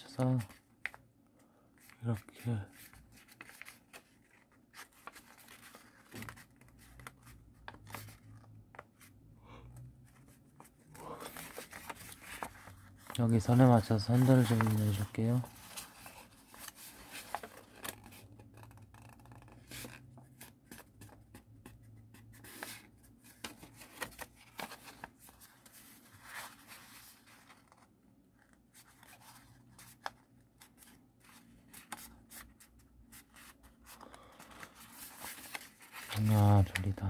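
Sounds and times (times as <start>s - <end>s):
paper rustling and crinkling: 1.8s - 9.2s, 10.0s - 21.2s, 22.4s - 37.0s.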